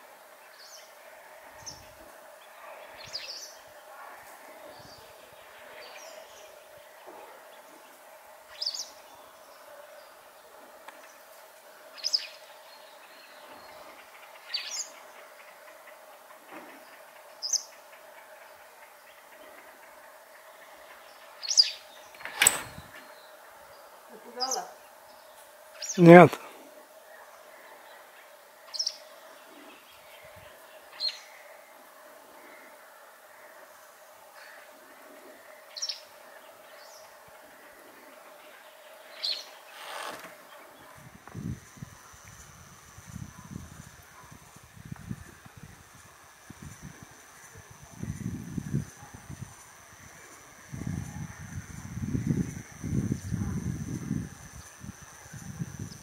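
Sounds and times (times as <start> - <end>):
bird chirping calls: 20.8 - 23.4.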